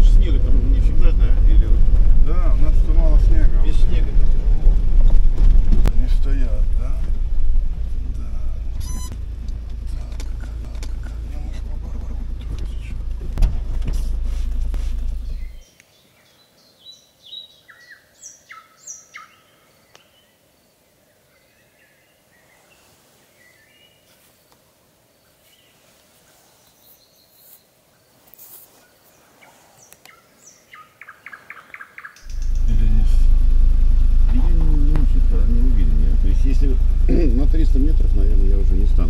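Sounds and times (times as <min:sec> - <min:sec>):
vehicle engine rumbling: 0:00.0 - 0:15.6, 0:32.2 - 0:39.0
faint bird chirps: 0:08.8 - 0:09.2, 0:15.2 - 0:24.6
birds singing whistled notes: 0:15.2 - 0:24.1, 0:26.4 - 0:27.7, 0:29.0 - 0:32.5.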